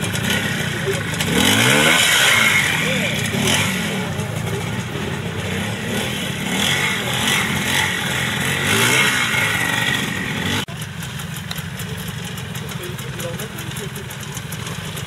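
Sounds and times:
motorcycle engine revving: 0.0s - 15.0s
motorcycle engine running steadily: 0.0s - 15.0s.

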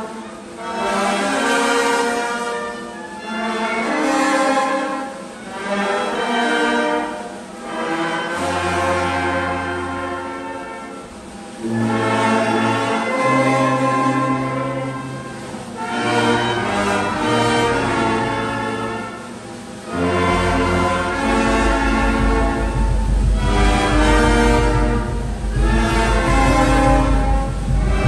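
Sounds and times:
traditional dance music with held chords: 0.0s - 28.0s
deep bass: 20.0s - 28.0s.

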